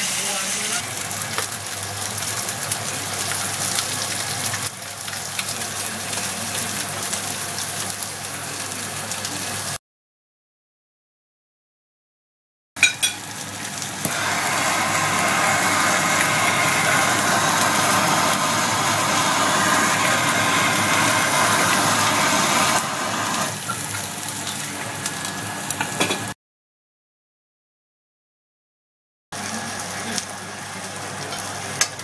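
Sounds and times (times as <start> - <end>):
fat sizzling: 12.8 - 25.9
blowtorch flame hissing: 14.0 - 23.7.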